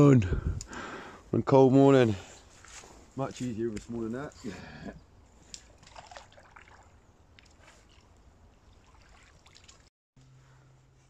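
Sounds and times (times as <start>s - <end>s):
water splashing and trickling: 5.2s - 9.9s.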